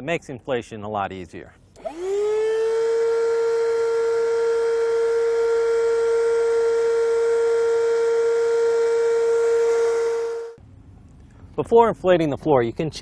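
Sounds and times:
electric pump humming: 0:01.8 - 0:10.6.

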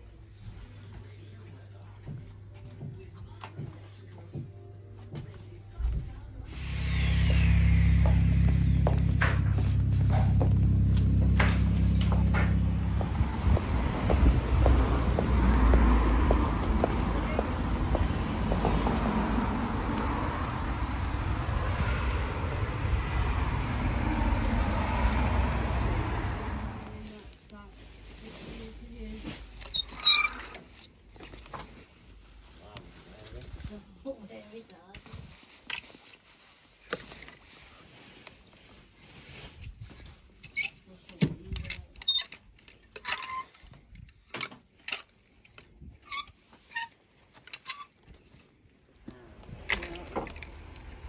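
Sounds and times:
traffic rumble: 0:05.4 - 0:35.7, 0:48.4 - 0:51.0.

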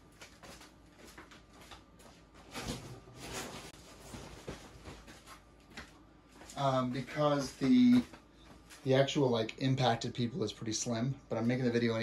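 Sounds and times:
faint rustling and handling: 0:00.2 - 0:09.0.

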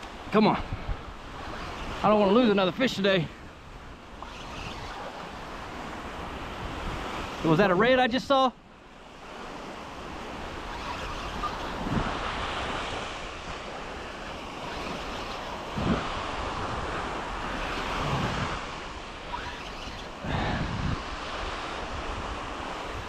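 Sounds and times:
wind buffeting microphone: 0:00.0 - 0:07.5, 0:09.3 - 0:23.0
surf washing onto beach: 0:00.0 - 0:23.0.

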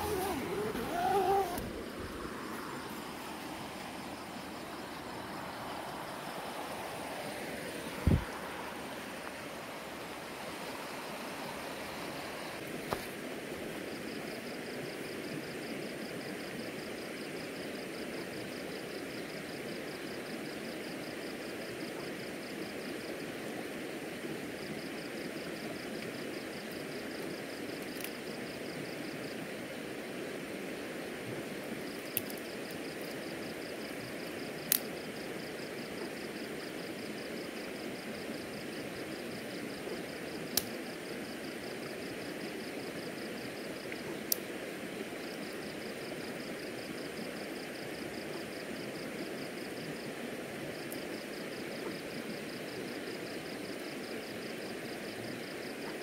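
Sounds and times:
river water flowing: 0:00.0 - 0:13.9.

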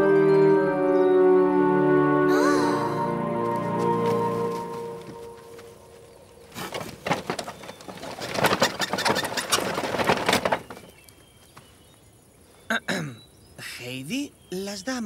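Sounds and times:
organ-like music: 0:00.0 - 0:08.4
clicks and rustles: 0:06.5 - 0:11.7.

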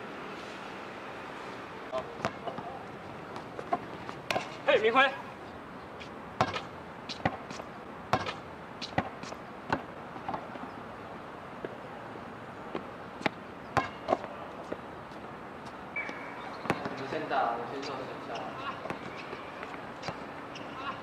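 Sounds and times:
outdoor background noise: 0:00.0 - 0:21.0
basketballs bouncing: 0:02.0 - 0:04.7, 0:06.4 - 0:10.6, 0:12.8 - 0:14.8, 0:16.0 - 0:17.1, 0:17.8 - 0:20.9.

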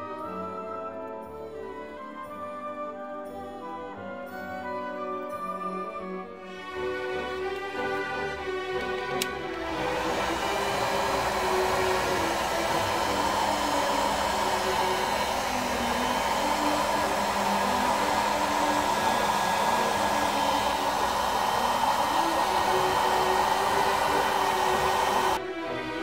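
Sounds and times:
hair dryer blowing: 0:06.5 - 0:26.0
hair dryer switch click: 0:08.8 - 0:25.4.

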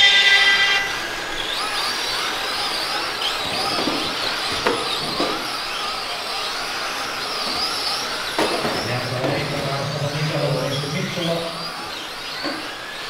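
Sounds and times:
horn blast: 0:00.0 - 0:01.3
model truck electric motors whining: 0:00.0 - 0:13.0.

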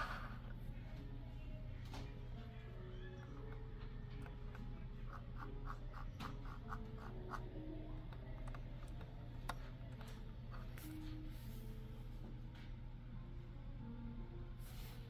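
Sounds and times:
low steady hum: 0:00.0 - 0:15.0
mouse scraping on wooden desk: 0:03.2 - 0:10.8.

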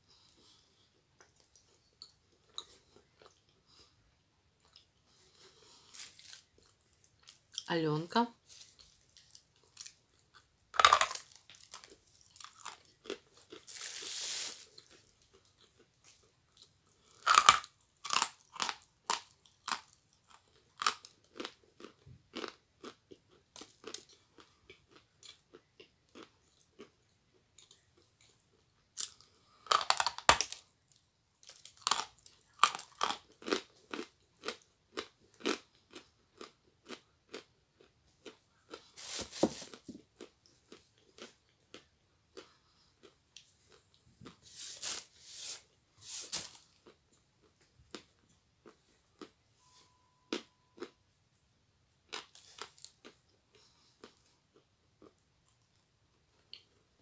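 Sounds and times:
chewing crunches: 0:08.5 - 0:45.1.

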